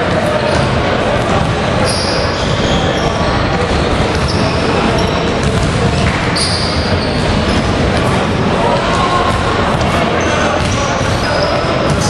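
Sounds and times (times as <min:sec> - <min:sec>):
court and crowd noise: 0:00.0 - 0:12.0
high-pitched shoe squeaks: 0:01.8 - 0:03.3, 0:04.1 - 0:05.3, 0:06.4 - 0:07.7.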